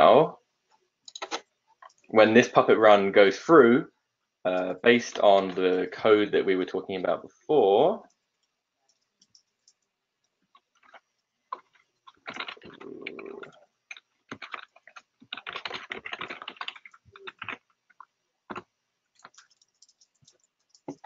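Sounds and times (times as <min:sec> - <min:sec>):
keyboard and mouse clicks: 0:01.1 - 0:02.1, 0:08.4 - 0:09.9, 0:11.6 - 0:21.0.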